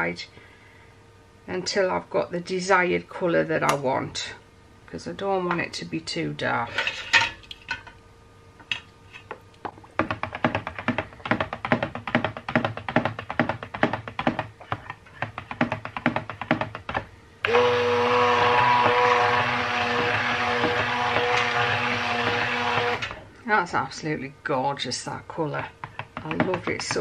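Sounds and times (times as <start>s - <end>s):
stick blender motor humming: 17.4s - 23.2s
blender head knocking on plastic jug: 18.4s - 23.1s, 25.8s - 27.0s.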